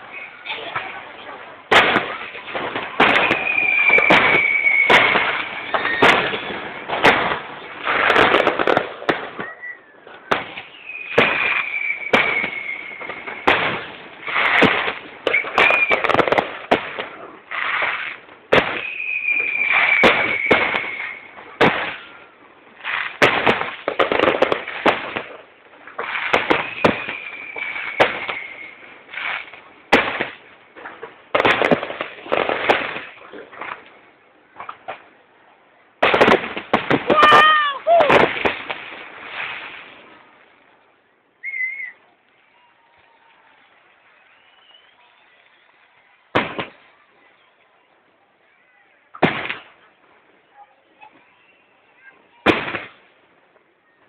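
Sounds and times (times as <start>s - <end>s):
fireworks bangs and crackling: 0.0s - 54.0s
falling firework whistle: 2.9s - 7.3s, 9.1s - 16.4s, 18.0s - 22.2s, 26.3s - 29.5s, 41.4s - 45.8s.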